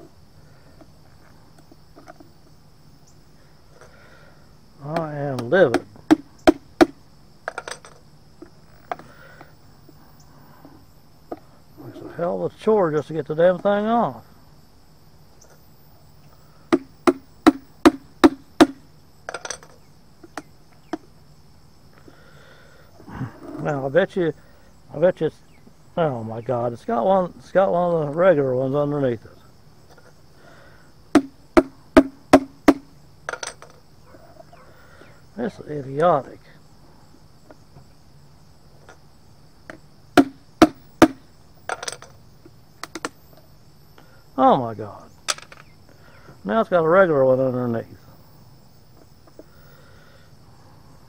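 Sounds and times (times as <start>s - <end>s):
crickets chirping: 0.0s - 51.0s
hammer knocking on paint can: 16.8s - 18.8s, 31.2s - 32.9s, 40.2s - 41.2s
hammer striking: 40.2s - 41.2s.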